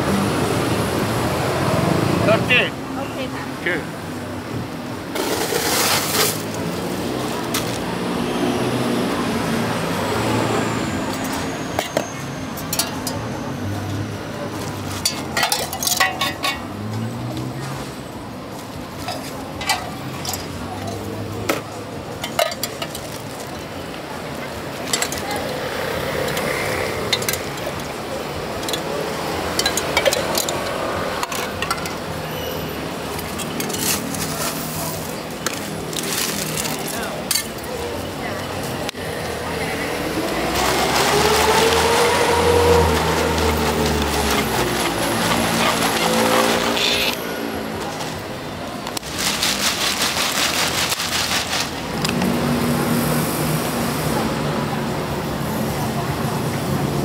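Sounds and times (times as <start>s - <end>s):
distant voices: 0.0s - 57.0s
steady background noise: 0.0s - 57.0s
traffic hum: 0.0s - 57.0s
ice and metal spoon clinking: 14.9s - 16.7s, 29.5s - 32.0s.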